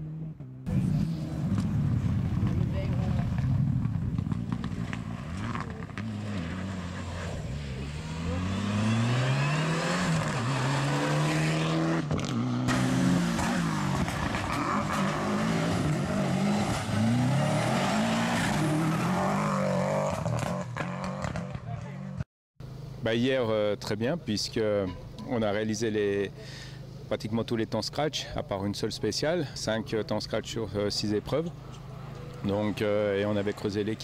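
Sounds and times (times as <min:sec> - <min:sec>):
rally car engines revving: 0:00.0 - 0:22.2, 0:31.1 - 0:34.0
tyres on gravel: 0:00.9 - 0:10.8.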